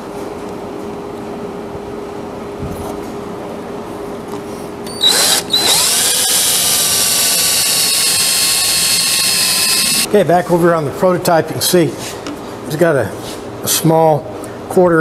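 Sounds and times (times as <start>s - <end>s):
cordless drill boring into wood: 4.9s - 10.1s.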